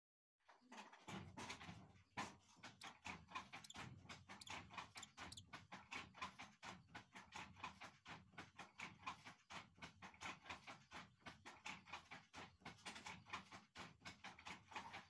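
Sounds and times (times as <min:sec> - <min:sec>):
hawk chick chirping: 0:03.6 - 0:05.4.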